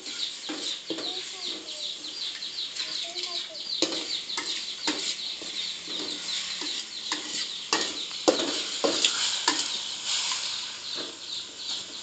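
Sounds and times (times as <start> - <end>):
metal spatula scraping a wok: 0.0 - 1.6, 3.8 - 12.0
chickens chirping: 0.0 - 12.0
frying hiss: 0.0 - 12.0.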